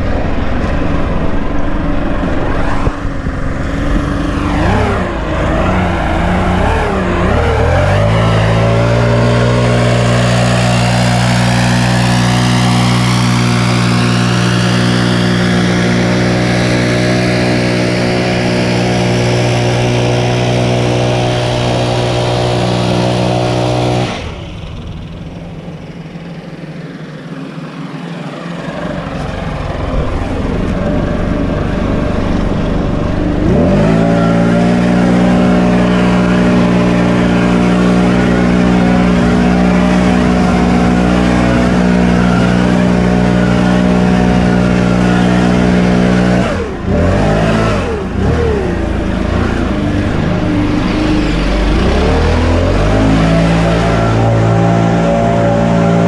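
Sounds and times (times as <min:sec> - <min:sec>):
rush of air: 0:00.0 - 0:07.2, 0:29.0 - 0:35.8, 0:48.0 - 0:53.8
backpack blower engine running: 0:00.0 - 0:56.0.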